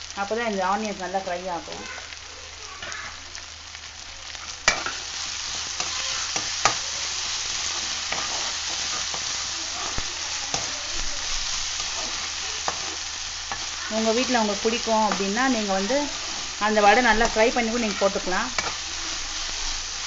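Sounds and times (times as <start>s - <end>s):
onions sizzling in oil: 0.0s - 20.0s
spatula scraping a pan: 4.3s - 20.0s.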